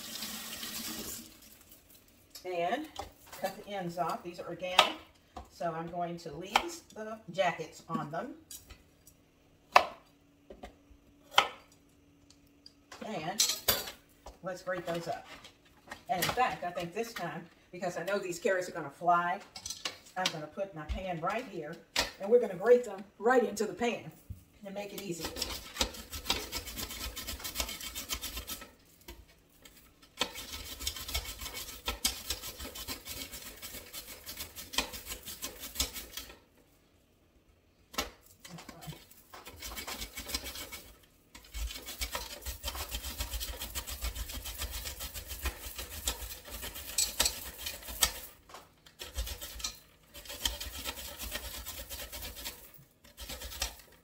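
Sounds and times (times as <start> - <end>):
carrots grated on hand grater: 25.0 - 28.7, 30.2 - 36.4, 38.8 - 48.4, 49.0 - 54.0.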